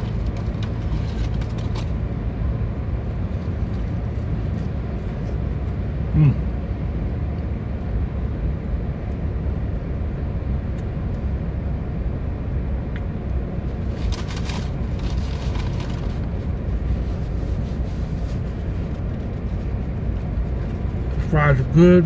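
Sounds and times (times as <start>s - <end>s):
paper rustling: 0.0s - 2.0s, 13.8s - 19.7s
car idling with air conditioning: 0.0s - 22.0s.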